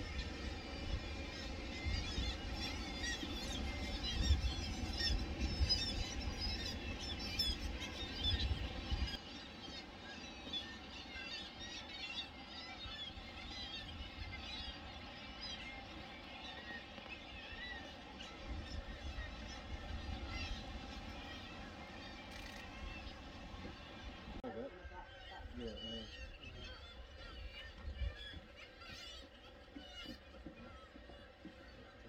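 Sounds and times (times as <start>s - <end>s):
wind buffeting microphone: 0.0s - 9.2s
seabird colony calling: 0.0s - 32.0s.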